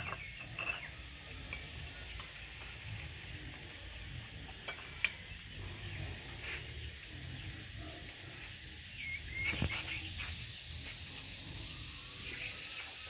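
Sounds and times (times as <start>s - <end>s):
metal tableware clinking: 0.0s - 2.4s, 4.5s - 5.4s
steady background noise: 0.0s - 13.0s.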